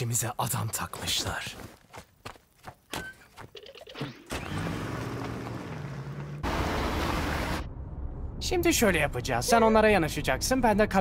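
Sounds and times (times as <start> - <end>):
truck engine revving: 4.3 - 7.7.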